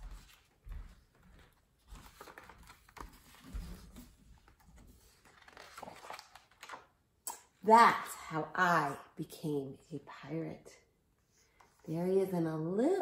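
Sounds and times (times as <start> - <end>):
footsteps on hardwood floor: 0.0 - 4.4
book pages turning: 1.8 - 7.0.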